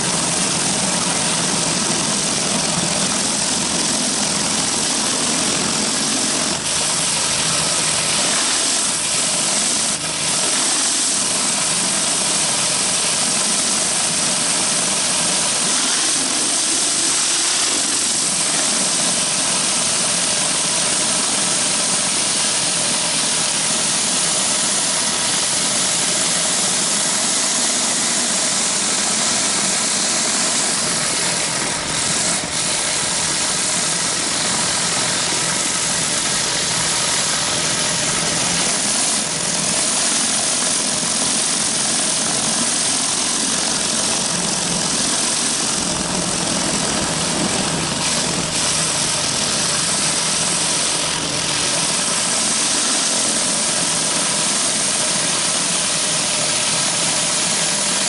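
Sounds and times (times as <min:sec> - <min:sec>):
engine drone: 0:00.0 - 0:58.0
pressure washer spray hissing: 0:00.0 - 0:58.0.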